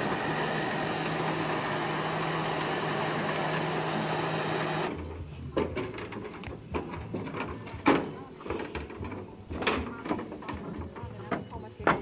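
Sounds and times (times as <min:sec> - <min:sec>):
motor vehicle idling hum: 0:00.0 - 0:05.2.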